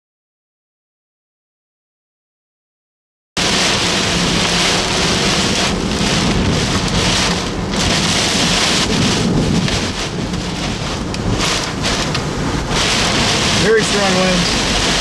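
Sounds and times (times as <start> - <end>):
heavy rain on car windshield: 3.4 - 15.0.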